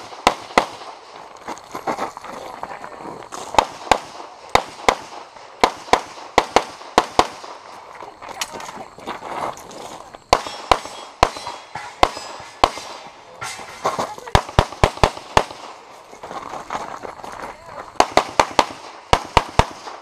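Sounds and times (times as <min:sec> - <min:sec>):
pistol shots: 0:00.0 - 0:01.1, 0:03.5 - 0:07.7, 0:10.3 - 0:15.8, 0:17.9 - 0:20.0.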